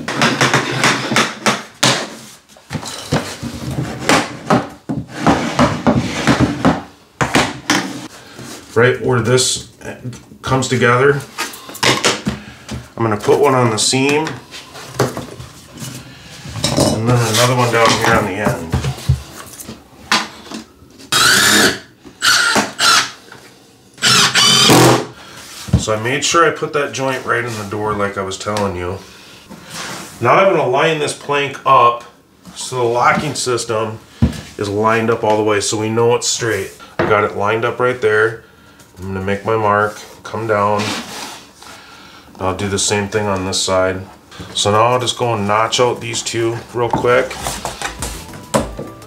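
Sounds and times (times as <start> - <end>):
cordless drill whining: 21.1 - 23.2, 24.0 - 24.9.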